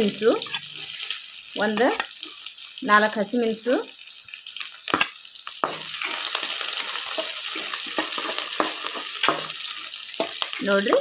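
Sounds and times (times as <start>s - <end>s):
chillies sizzling in hot oil: 0.0s - 11.0s
metal spatula scraping pan: 0.2s - 1.2s, 5.6s - 11.0s.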